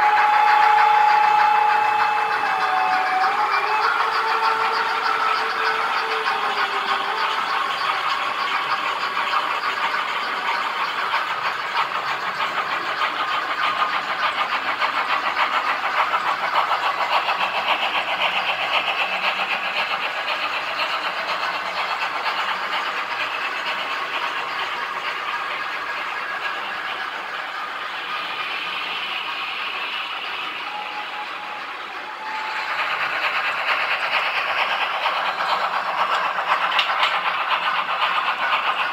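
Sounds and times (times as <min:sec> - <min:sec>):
model train wheels clicking on track: 0:00.0 - 0:38.9
train motor hum: 0:00.0 - 0:38.9.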